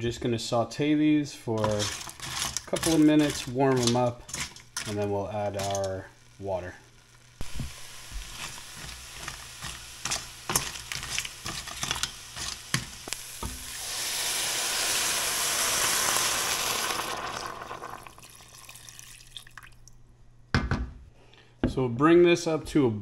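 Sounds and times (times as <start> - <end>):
crab sizzling in a pot: 1.5 - 19.6
water pouring into hot pot: 13.0 - 19.9.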